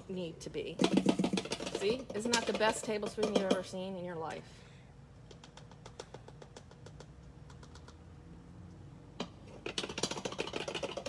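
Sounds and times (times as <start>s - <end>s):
small clicks and rattles: 5.2s - 8.0s, 9.4s - 11.0s.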